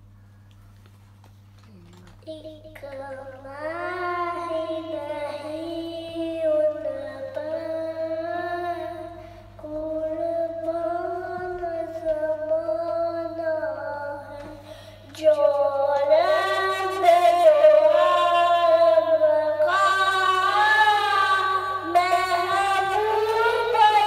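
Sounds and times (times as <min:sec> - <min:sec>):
steady low hum: 0:00.0 - 0:24.0
boy chanting into a microphone: 0:01.7 - 0:14.6, 0:15.2 - 0:24.0.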